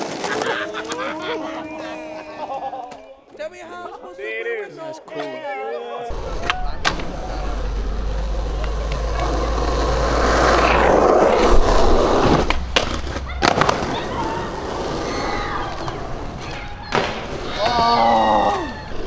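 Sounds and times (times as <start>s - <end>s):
skateboard wheels rolling on asphalt: 0.0s - 1.4s, 6.1s - 19.0s
skateboard clacks: 6.1s - 18.6s.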